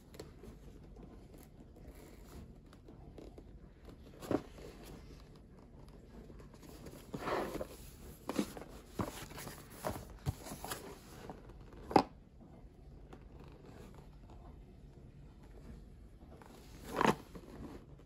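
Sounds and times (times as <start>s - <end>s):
cardboard box rustling scrape: 6.5s - 11.6s, 16.5s - 17.9s.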